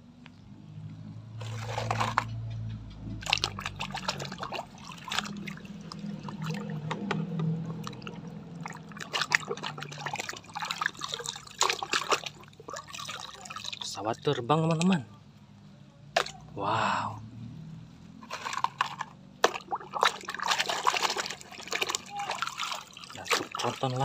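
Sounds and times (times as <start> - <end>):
water splashing in plastic tub: 1.3 - 2.5, 3.1 - 15.0, 16.1 - 16.5, 18.2 - 24.0.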